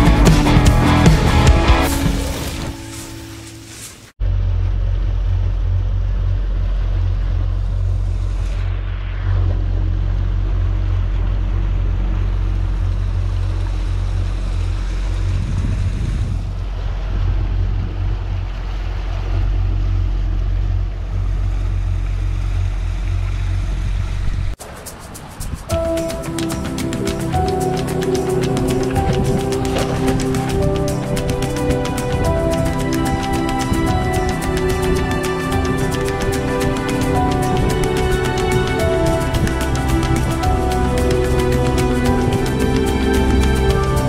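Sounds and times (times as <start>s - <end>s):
water rushing in wake: 6.0s - 44.0s
wind on microphone: 6.7s - 21.7s, 23.2s - 44.0s
outboard motor running: 9.3s - 24.5s, 25.8s - 44.0s.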